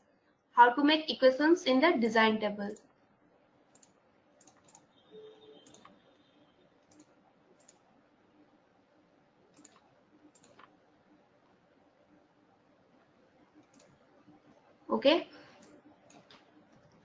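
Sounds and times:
computer mouse clicks: 0:03.7 - 0:04.9, 0:05.6 - 0:06.0, 0:06.8 - 0:07.9, 0:09.5 - 0:11.6, 0:13.0 - 0:14.7, 0:15.5 - 0:17.0.

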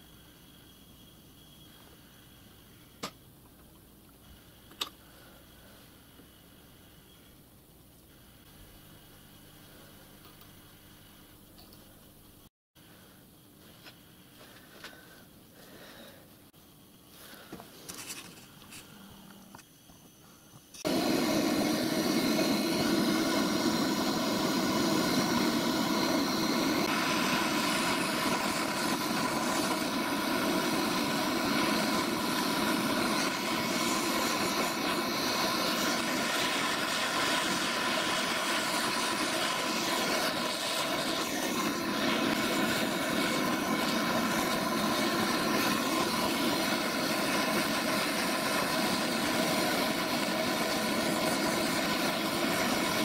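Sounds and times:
blowtorch flame rushing: 0:20.8 - 0:53.0.

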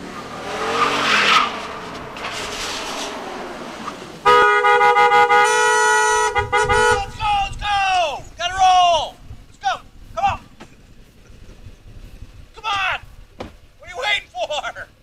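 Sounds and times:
car engine revving: 0:00.0 - 0:07.0
car horn long honk: 0:04.2 - 0:07.1.

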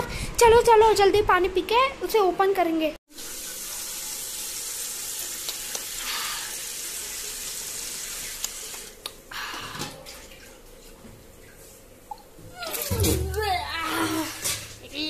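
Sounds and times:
tap water running: 0:03.1 - 0:14.9.

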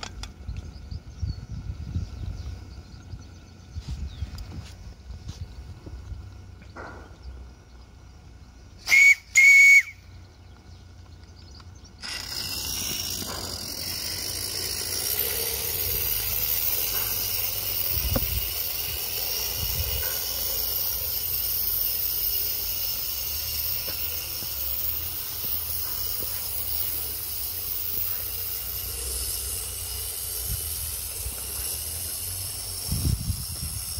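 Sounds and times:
steam hissing: 0:08.7 - 0:10.0, 0:12.0 - 0:33.9
steam whistle blast: 0:08.8 - 0:10.1.

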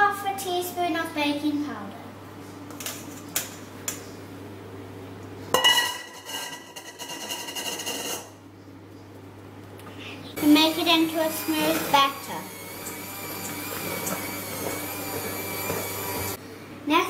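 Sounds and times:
metal bowl and sieve clinking: 0:05.6 - 0:08.4.

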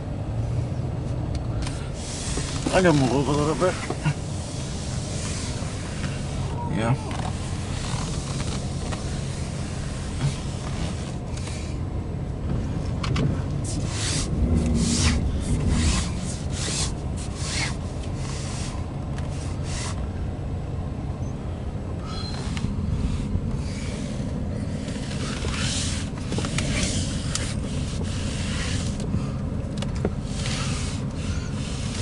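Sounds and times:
freight train rumbling on trestle: 0:12.4 - 0:19.8
short hissing swishes: 0:13.6 - 0:20.0, 0:30.2 - 0:32.0.

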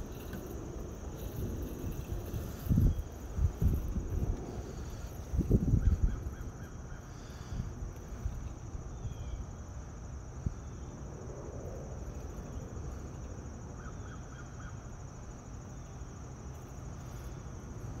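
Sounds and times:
wind rumbling on microphone: 0:00.0 - 0:13.8.

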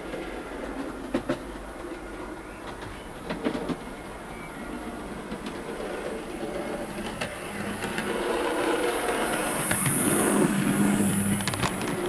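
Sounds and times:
wheels rumbling on rails: 0:00.0 - 0:12.0
model train motor humming: 0:06.2 - 0:12.0.

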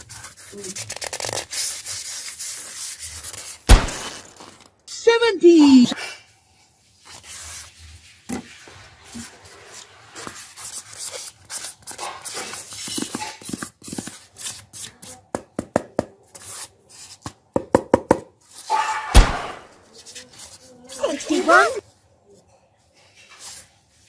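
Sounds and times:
foam rubbing on cardboard: 0:00.0 - 0:03.7, 0:06.8 - 0:15.1.

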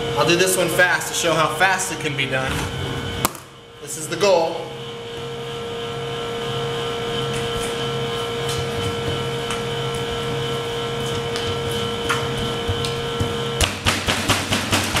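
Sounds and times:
machine hum with whine: 0:00.0 - 0:15.0
hands rolling dough: 0:11.0 - 0:15.0.

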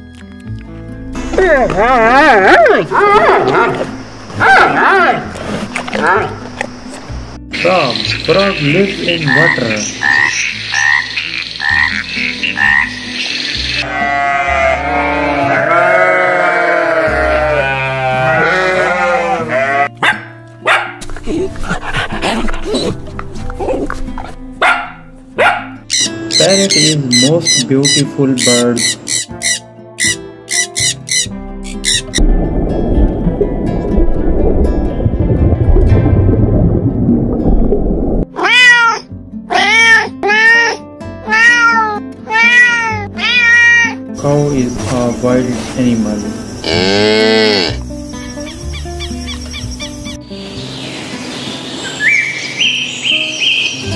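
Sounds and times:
background music: 0:00.0 - 0:53.9
goats bleating: 0:13.8 - 0:20.0
low rumbling noise: 0:32.2 - 0:38.3
kitten meowing: 0:38.4 - 0:44.0.

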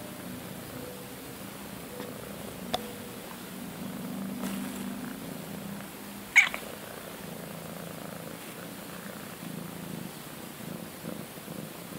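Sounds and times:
cat purring: 0:02.0 - 0:11.9.

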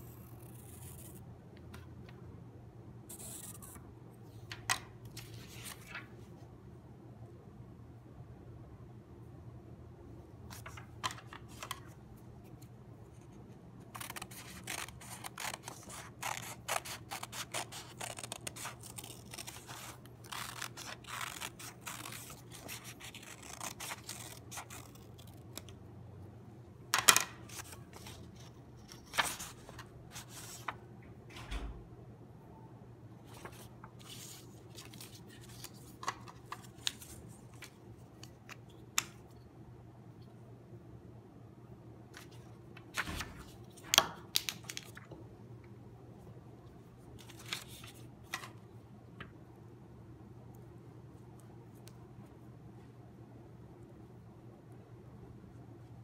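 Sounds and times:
paper rustling: 0:13.9 - 0:25.7, 0:27.0 - 0:30.8, 0:33.3 - 0:38.6, 0:42.2 - 0:45.0, 0:47.2 - 0:48.6
scissors snipping paper: 0:13.9 - 0:25.7.

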